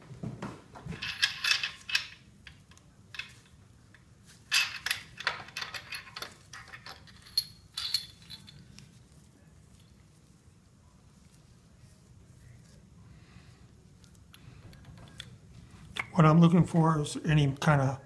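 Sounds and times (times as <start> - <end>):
metal clinks and rattles: 0.8 - 9.0.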